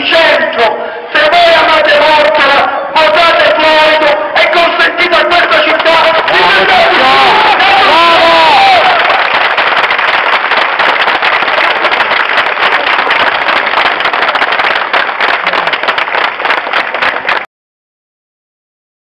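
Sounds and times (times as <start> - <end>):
crowd applauding: 5.5 - 17.5.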